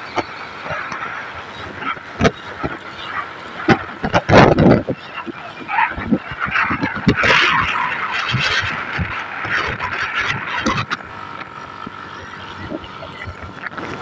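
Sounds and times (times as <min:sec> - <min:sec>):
vehicle driving noise: 0:00.0 - 0:14.0
wind thumps on microphone: 0:03.6 - 0:12.0.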